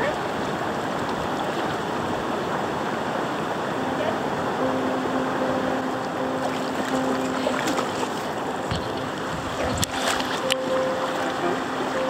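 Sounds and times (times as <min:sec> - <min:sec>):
river water over rocks: 0:00.0 - 0:12.0
faint low tone: 0:03.8 - 0:12.0.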